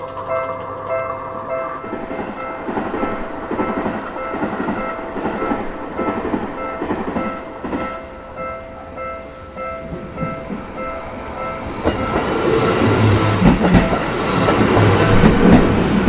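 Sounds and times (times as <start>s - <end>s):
level-crossing electronic bell: 0.1s - 12.8s
train rumble and wheel clatter: 1.1s - 16.0s.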